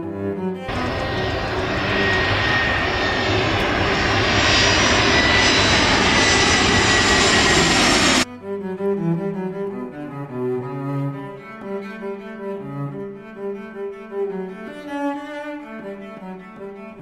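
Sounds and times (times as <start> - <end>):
jet airliner engines rushing: 0.7 - 8.3.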